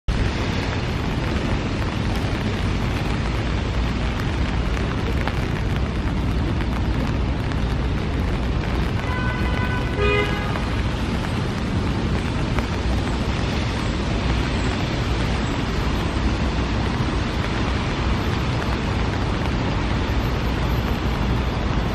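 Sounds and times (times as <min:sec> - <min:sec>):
low traffic rumble: 0:00.1 - 0:21.9
rain hissing: 0:00.1 - 0:21.9.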